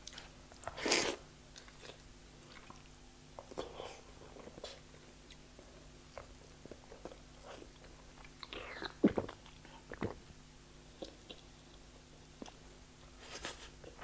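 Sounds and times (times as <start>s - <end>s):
chewing with wet clicks: 1.5s - 3.8s, 4.6s - 5.5s, 6.1s - 10.2s.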